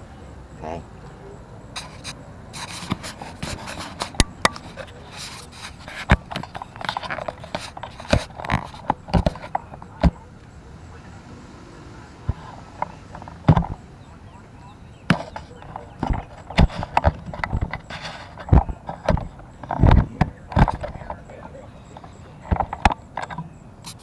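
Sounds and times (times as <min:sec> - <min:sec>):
sharp knocks and clicks: 0:01.8 - 0:10.2, 0:12.3 - 0:13.9, 0:15.1 - 0:21.3, 0:21.9 - 0:24.0
rustling: 0:01.8 - 0:10.3, 0:14.9 - 0:24.0.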